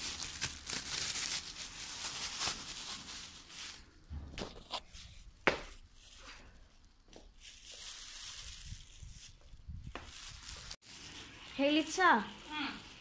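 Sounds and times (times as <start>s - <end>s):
plastic bag crinkling: 0.0s - 13.0s
soft footsteps: 6.9s - 8.0s.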